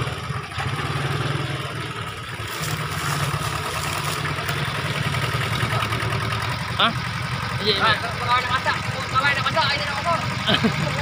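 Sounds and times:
tractor diesel engine running: 0.0 - 11.0.

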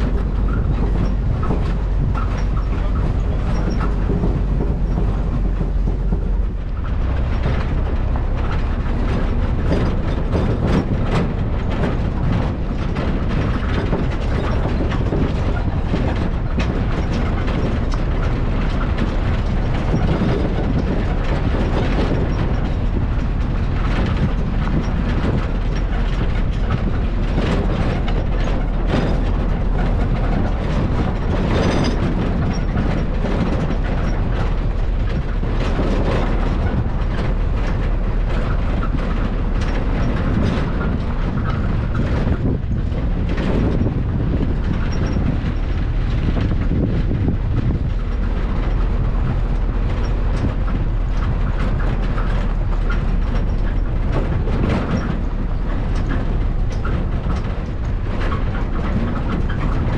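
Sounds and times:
rattling and knocking: 0.0 - 59.9
vehicle rumble on rough road: 0.0 - 59.9.

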